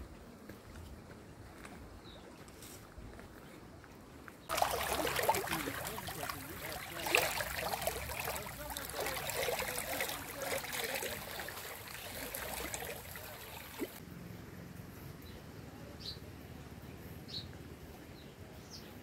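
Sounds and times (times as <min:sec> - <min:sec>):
stream babbling and trickling: 0:04.5 - 0:14.0.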